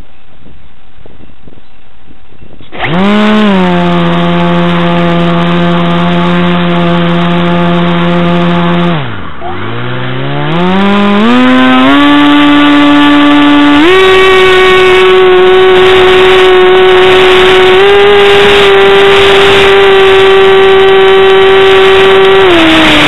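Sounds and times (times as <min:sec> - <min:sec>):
model aircraft motor whining: 0:02.7 - 0:23.0.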